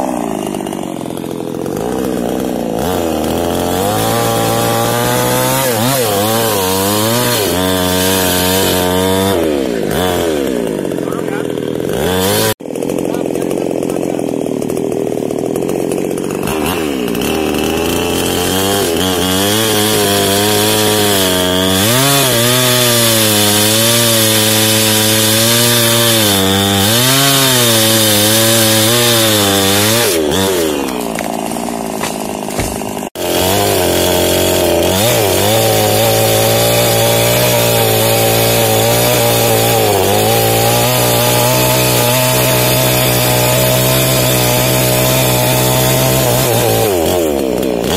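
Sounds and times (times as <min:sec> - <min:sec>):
chainsaw cutting into tree trunk: 0:00.0 - 0:47.9
chainsaw engine revving: 0:00.0 - 0:47.9.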